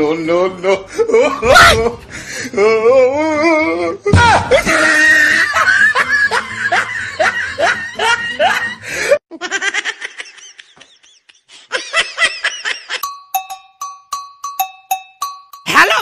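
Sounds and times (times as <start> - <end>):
person laughing: 4.5 - 13.0.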